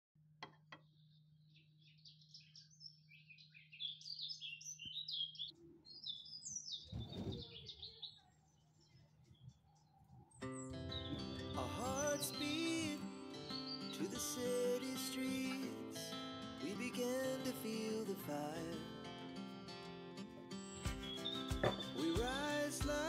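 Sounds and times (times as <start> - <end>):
small birds chirping: 0.8 - 15.7, 20.4 - 23.0.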